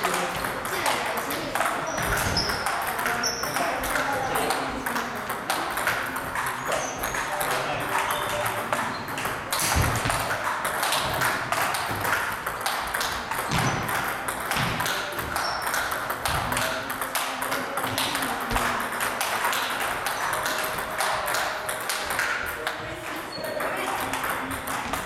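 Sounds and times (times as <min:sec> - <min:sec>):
table tennis ball clicks: 0:00.0 - 0:25.0.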